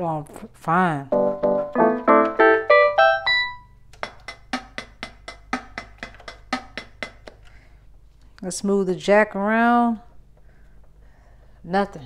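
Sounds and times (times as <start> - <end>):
keyboard rising note run: 1.1 - 3.7
clicky keyboard rhythm beat: 1.2 - 7.6.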